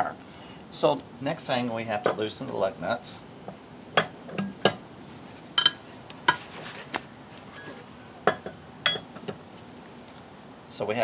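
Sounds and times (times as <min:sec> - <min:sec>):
lug wrench clinking on lug nuts: 0:07.6 - 0:09.3.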